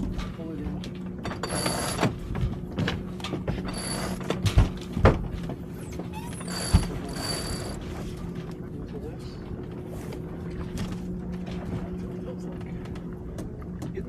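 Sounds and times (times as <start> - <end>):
winch ratcheting: 1.2 - 2.2, 3.6 - 4.4, 6.3 - 7.8.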